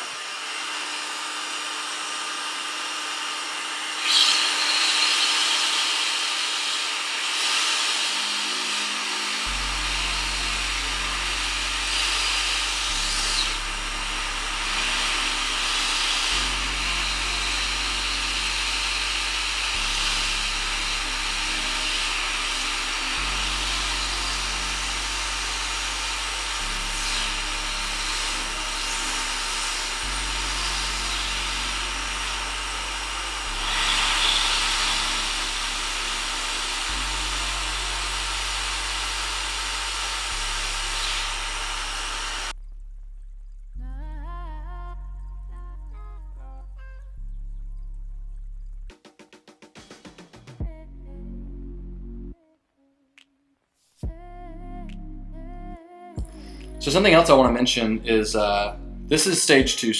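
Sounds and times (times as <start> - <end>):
heat gun blowing air: 0.0 - 42.5.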